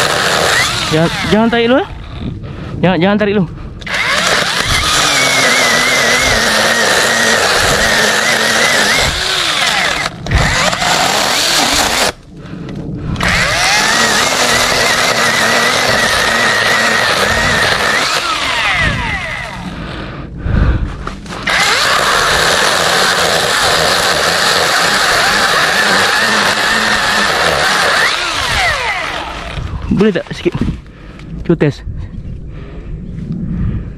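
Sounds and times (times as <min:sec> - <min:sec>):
electric chainsaw cutting wood: 0:00.0 - 0:02.3, 0:03.8 - 0:12.2, 0:13.2 - 0:19.8, 0:21.2 - 0:29.8.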